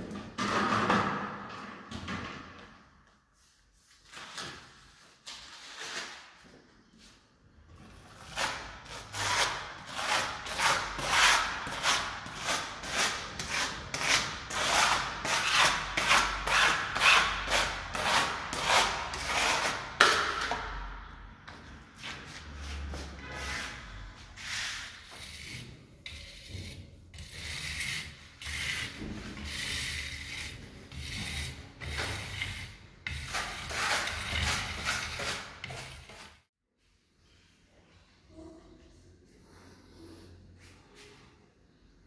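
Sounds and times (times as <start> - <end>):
trowel scraping paint on stencil: 7.8 - 20.4, 22.0 - 36.5.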